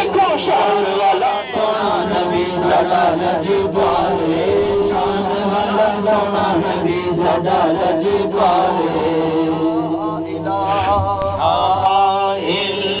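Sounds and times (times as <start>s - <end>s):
men chanting: 0.0s - 13.0s
steady low hum: 8.0s - 12.7s.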